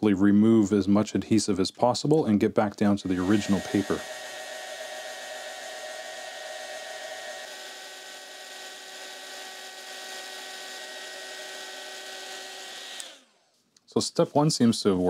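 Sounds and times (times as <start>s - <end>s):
heat gun hissing and whining: 3.1s - 13.4s.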